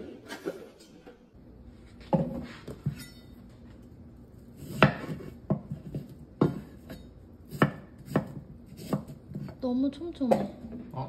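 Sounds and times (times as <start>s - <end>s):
knife cutting melon: 4.6s - 9.5s.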